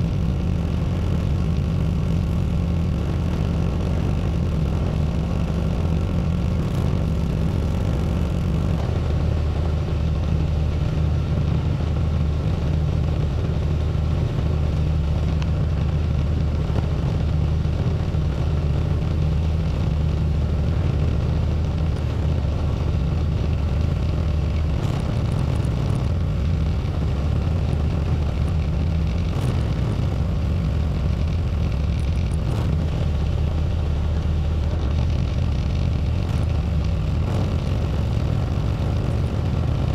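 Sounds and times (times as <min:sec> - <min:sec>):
tractor engine running: 0:00.0 - 0:39.9.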